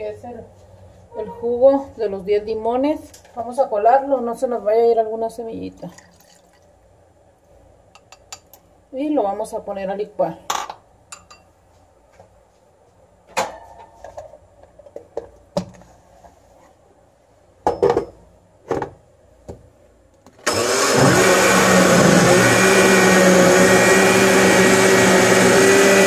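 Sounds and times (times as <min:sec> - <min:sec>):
blender running: 0:20.4 - 0:26.0.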